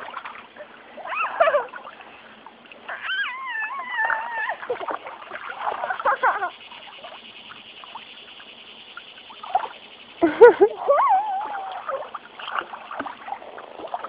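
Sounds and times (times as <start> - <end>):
water splashing: 0.0 - 14.0
high wavering cries: 2.9 - 4.8, 5.6 - 7.2, 10.2 - 12.2.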